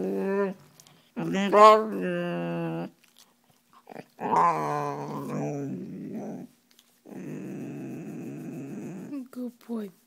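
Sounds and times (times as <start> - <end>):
dog growling: 1.2 - 3.0, 3.8 - 6.5, 7.1 - 9.2.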